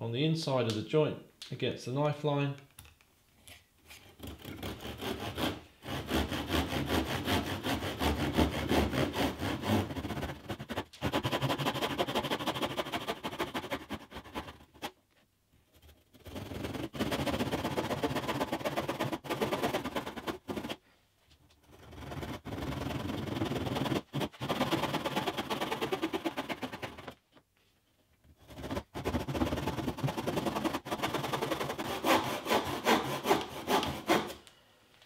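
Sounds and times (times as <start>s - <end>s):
saw rasping through wood: 4.0s - 15.0s, 15.7s - 20.8s, 21.6s - 27.2s, 28.4s - 34.4s.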